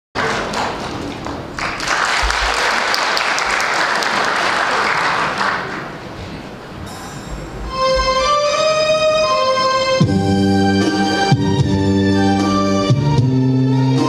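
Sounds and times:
audience applauding: 0:00.2 - 0:06.2.

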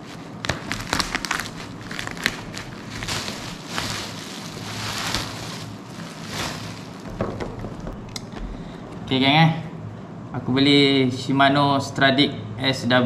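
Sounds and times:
bubble wrap crackling: 0:00.0 - 0:08.4.

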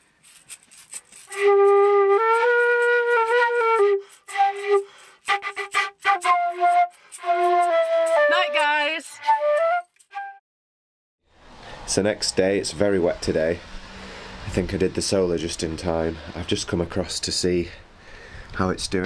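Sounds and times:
melody over clicking accompaniment: 0:04.1 - 0:10.1.

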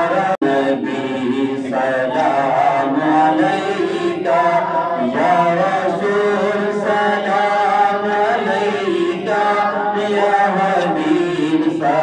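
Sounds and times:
voices singing together: 0:00.0 - 0:12.0.

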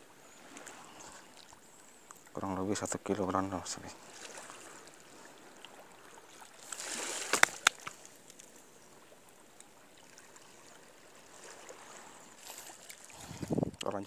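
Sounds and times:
handling rustle: 0:06.6 - 0:08.6, 0:12.3 - 0:13.8.

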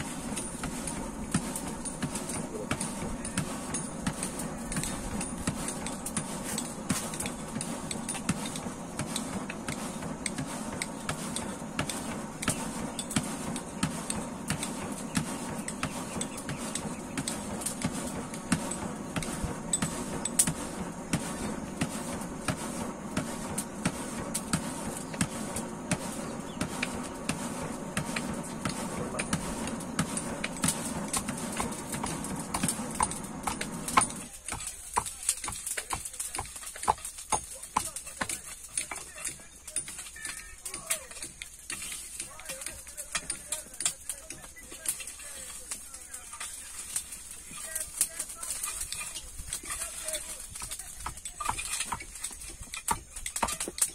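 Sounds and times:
low hum: 0:00.0 - 0:34.3.

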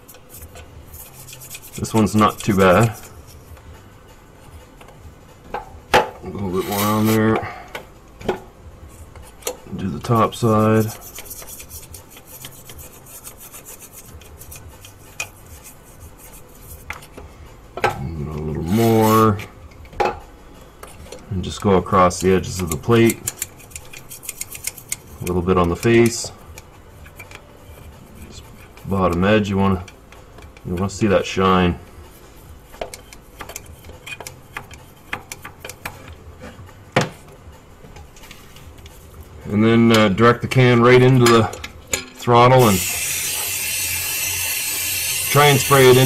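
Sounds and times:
toothbrush scrubbing metal: 0:00.0 - 0:03.4, 0:10.0 - 0:16.9, 0:22.0 - 0:26.3, 0:42.6 - 0:46.0.

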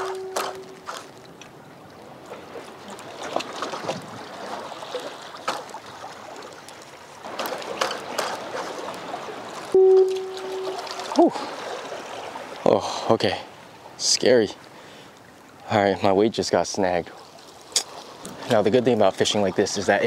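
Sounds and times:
seawater washing among rocks: 0:00.0 - 0:12.7, 0:16.8 - 0:20.0.

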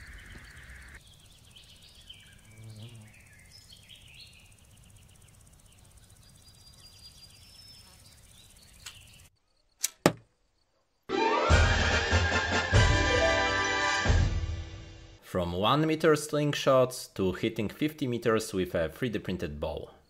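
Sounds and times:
birds chirping: 0:00.0 - 0:09.8
bowstring snapping: 0:09.8 - 0:10.2
arrow striking target: 0:09.8 - 0:10.3.

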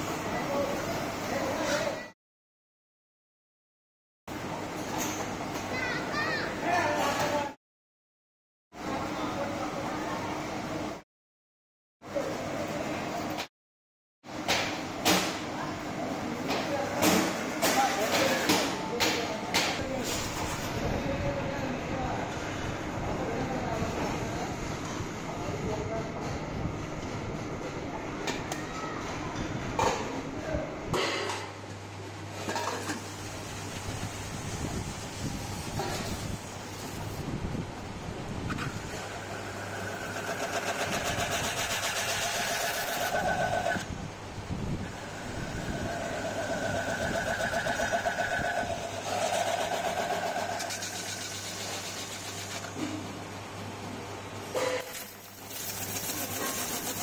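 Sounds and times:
lathe humming: 0:39.0 - 0:43.8, 0:44.8 - 0:51.0.

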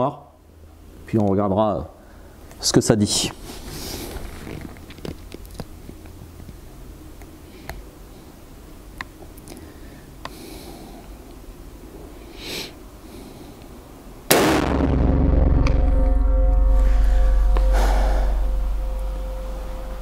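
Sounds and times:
breaths: 0:02.0 - 0:02.5, 0:09.5 - 0:11.2, 0:12.2 - 0:13.8
loud rifle shot: 0:14.3 - 0:16.8.

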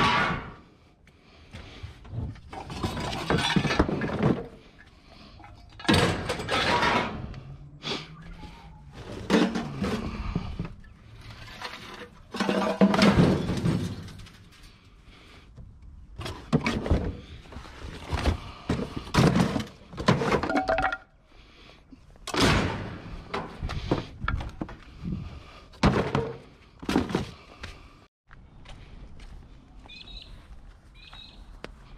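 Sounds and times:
scrap steel clanking: 0:02.4 - 0:07.6, 0:09.0 - 0:14.9.

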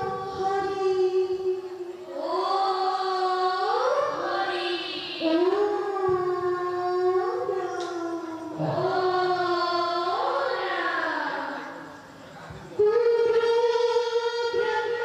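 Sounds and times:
women singing devotional chant: 0:00.0 - 0:11.8.

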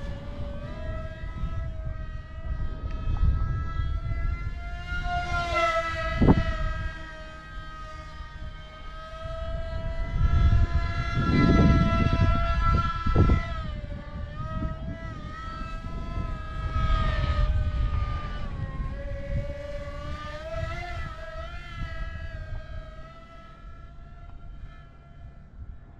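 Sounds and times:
electric motor and propeller whine: 0:00.0 - 0:25.9
wind on microphone: 0:00.0 - 0:25.9.

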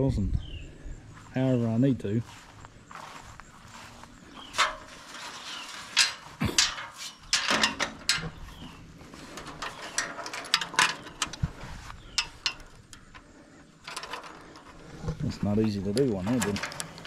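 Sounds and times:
metal gate knocks and rattles: 0:04.5 - 0:17.0.

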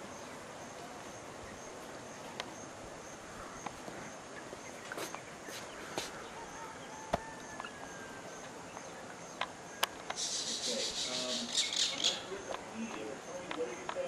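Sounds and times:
scattered clicks: 0:12.5 - 0:14.0.

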